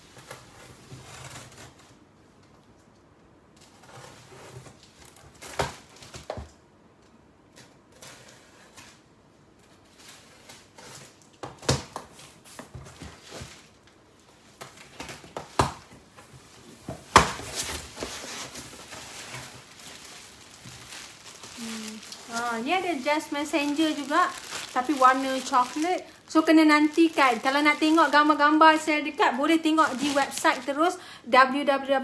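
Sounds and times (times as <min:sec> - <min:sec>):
cardboard boxes rustling and scraping: 0:16.2 - 0:26.0.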